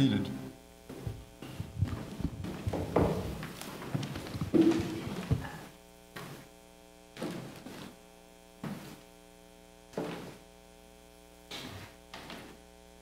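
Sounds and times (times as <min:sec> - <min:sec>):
electrical mains hum: 0:00.0 - 0:13.0
footsteps on carpeted steps: 0:00.9 - 0:06.5, 0:07.2 - 0:08.0, 0:08.6 - 0:09.1, 0:10.0 - 0:10.4, 0:11.5 - 0:12.6.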